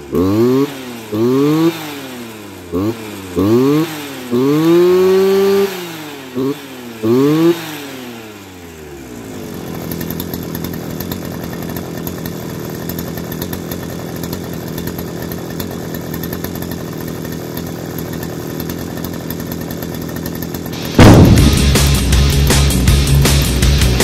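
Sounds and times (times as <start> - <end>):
brushcutter engine idling: 0.0 - 24.0.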